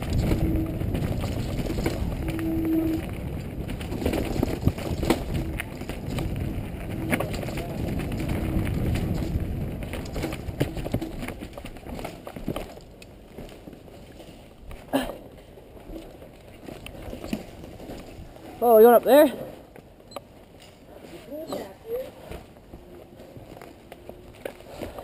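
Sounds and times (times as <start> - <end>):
bike knocks and rattles: 0.0 - 14.2, 15.9 - 18.4
bike tyre and wind rumble: 0.0 - 25.0.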